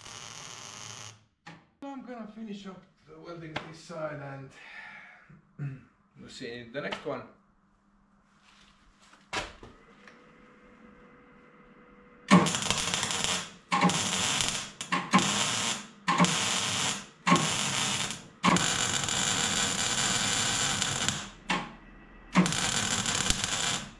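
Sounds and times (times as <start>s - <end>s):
welding arc crackling: 0.0s - 1.2s, 12.3s - 21.7s, 22.3s - 23.9s.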